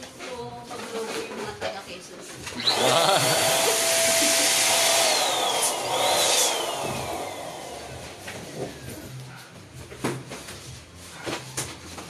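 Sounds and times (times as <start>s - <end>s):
electric balloon pump whining: 2.5s - 9.2s.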